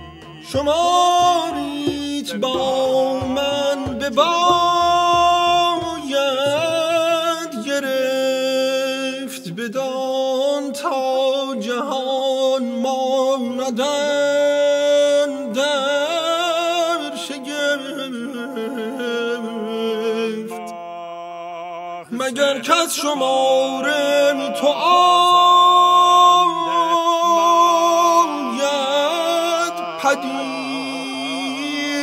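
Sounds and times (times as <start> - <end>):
vocal ensemble singing: 0.0 - 8.6, 16.8 - 32.0.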